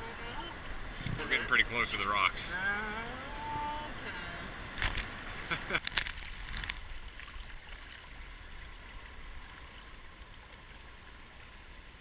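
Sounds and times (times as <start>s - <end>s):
waves washing over rocks: 0.0s - 7.1s.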